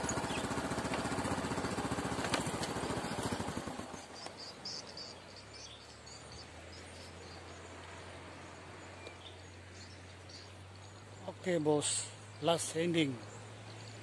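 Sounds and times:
small motorcycle engine idling: 0:00.0 - 0:14.0.

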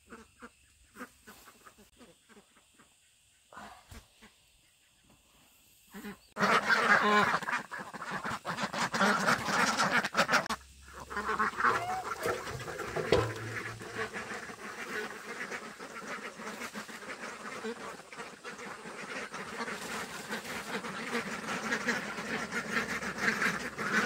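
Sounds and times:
flock of birds calling: 0:06.0 - 0:24.0.

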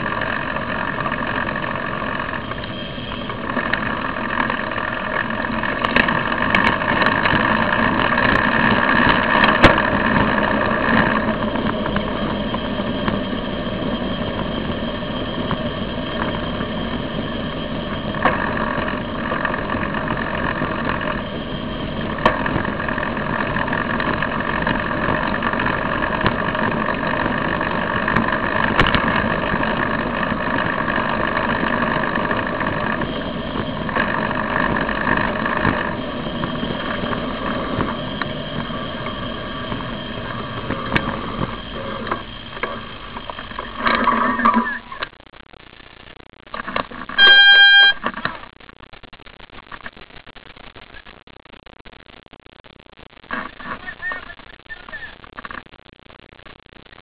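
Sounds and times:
street traffic: 0:00.0 - 0:45.1
bicycle road noise: 0:00.0 - 0:57.0
high hum: 0:00.0 - 0:57.0.

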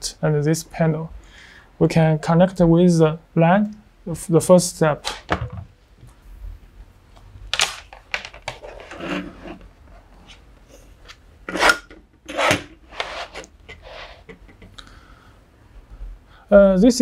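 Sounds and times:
cable rustling and scraping on desk: 0:07.9 - 0:14.7.

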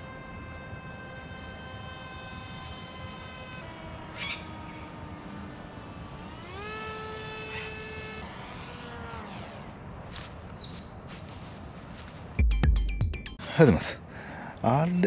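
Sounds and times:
model plane motor whining: 0:00.0 - 0:10.5
high chirps: 0:12.4 - 0:13.6.

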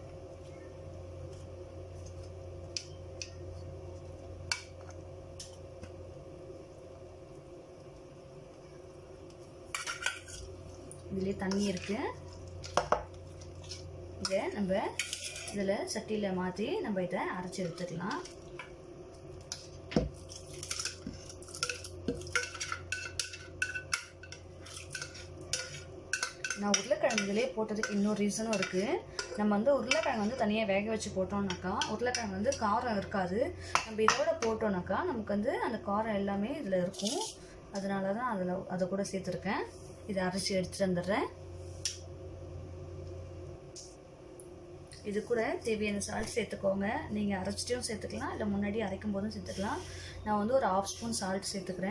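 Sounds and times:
steady low hum: 0:00.0 - 0:51.9
food scraped from pot: 0:15.0 - 0:15.6.

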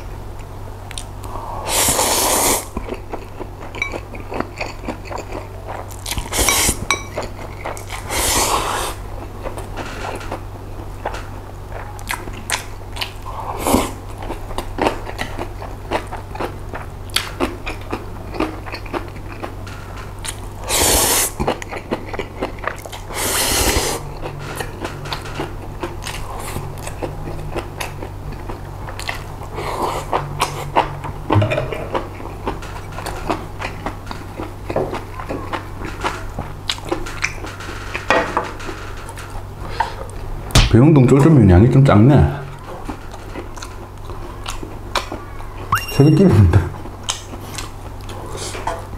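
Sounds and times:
noisy slurping of noodles: 0:01.6 - 0:02.7, 0:08.0 - 0:09.0, 0:20.7 - 0:21.4, 0:23.1 - 0:24.0
wet chewing with mouth clicks: 0:02.2 - 0:09.7, 0:11.7 - 0:19.6, 0:20.2 - 0:35.7
steady low hum: 0:21.3 - 0:34.8, 0:45.8 - 0:48.9.

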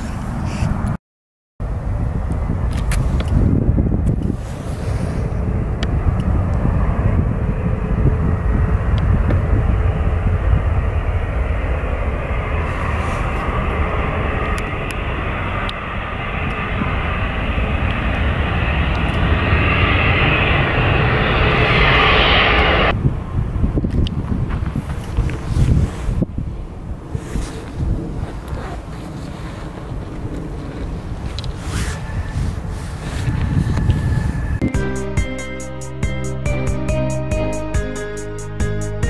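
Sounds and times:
jet engines roaring overhead: 0:01.6 - 0:34.7.

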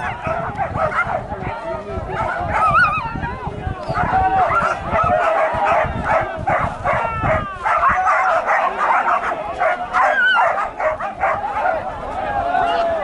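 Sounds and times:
dogs yelping and whining: 0:02.6 - 0:03.0, 0:10.0 - 0:11.4
men shouting: 0:03.3 - 0:13.0.

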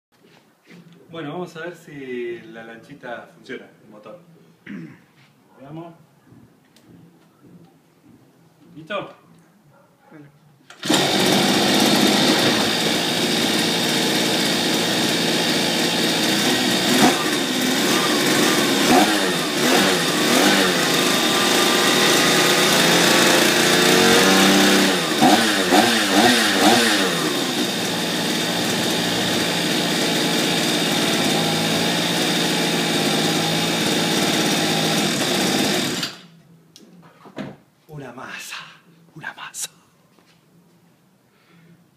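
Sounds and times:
model boat engine running: 0:10.8 - 0:36.2.

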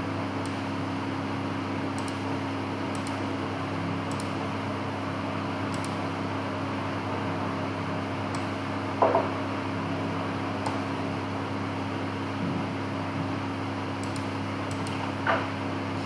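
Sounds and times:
room hum and hiss: 0:00.0 - 0:16.0
computer mouse clicks: 0:02.0 - 0:02.2, 0:02.9 - 0:03.2, 0:04.1 - 0:04.4, 0:05.7 - 0:06.0, 0:10.6 - 0:10.8, 0:14.0 - 0:15.0.

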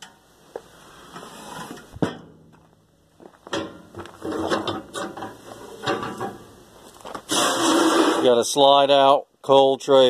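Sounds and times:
metal barbecue grates rattling: 0:03.6 - 0:06.5.

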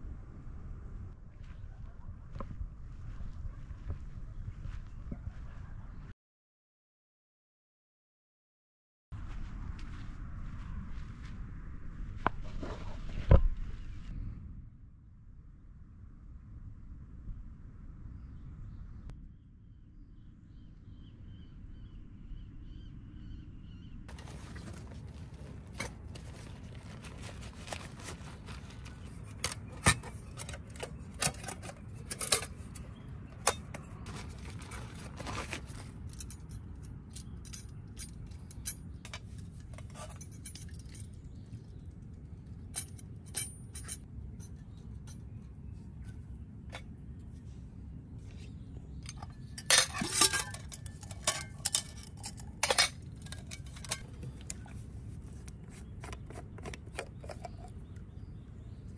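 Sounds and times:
cookware and utensils clinking: 0:49.1 - 0:54.6.

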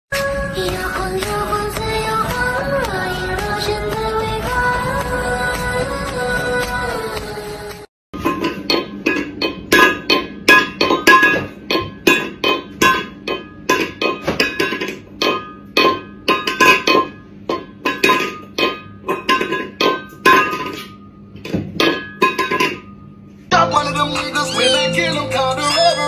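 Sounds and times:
metal bowl clanking: 0:08.2 - 0:23.0.

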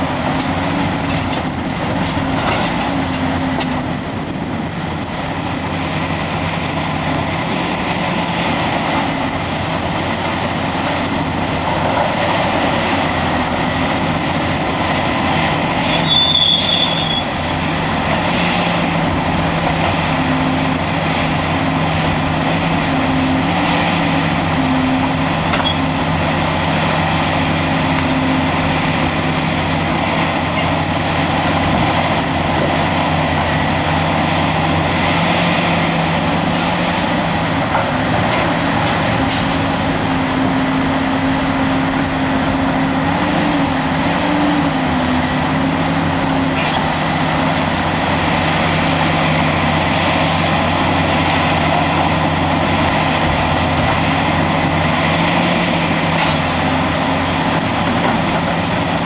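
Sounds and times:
dump truck idling: 0:00.0 - 0:59.0
excavator engine and hydraulics: 0:00.0 - 0:59.0.

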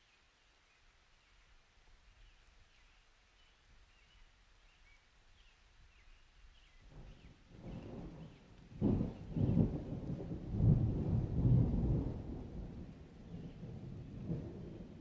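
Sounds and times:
low thunder rumble: 0:06.9 - 0:15.0.

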